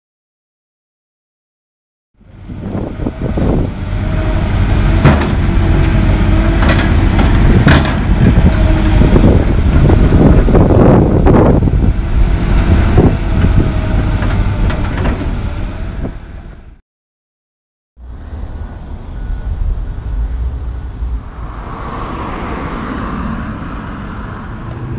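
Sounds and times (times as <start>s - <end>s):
diesel engine rumble: 2.2s - 16.8s, 18.0s - 24.9s
sharp knocks and clanks: 4.9s - 5.6s, 6.5s - 8.6s.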